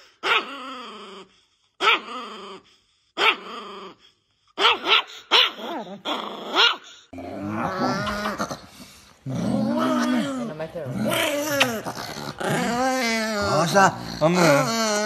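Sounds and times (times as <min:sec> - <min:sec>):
small dogs growling: 0:05.5 - 0:15.0.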